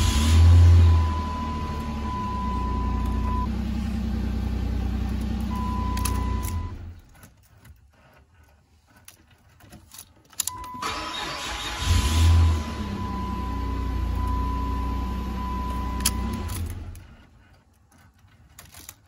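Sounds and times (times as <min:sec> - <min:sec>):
car engine running: 0:00.0 - 0:07.3, 0:10.9 - 0:17.5
car warning tone: 0:00.1 - 0:03.6, 0:05.4 - 0:06.9, 0:10.5 - 0:17.0
key and switch clicks: 0:09.8 - 0:10.8, 0:15.6 - 0:17.0.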